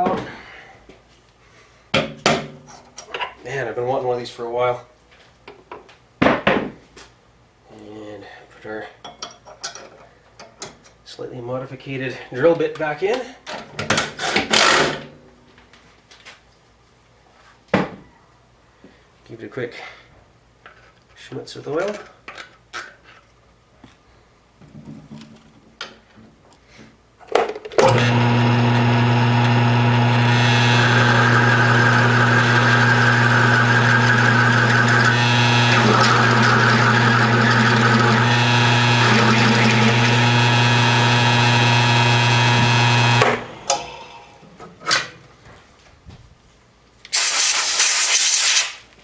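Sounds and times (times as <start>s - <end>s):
drill bit cutting steel: 27.8s - 43.8s
milling machine spindle hum: 27.8s - 43.9s.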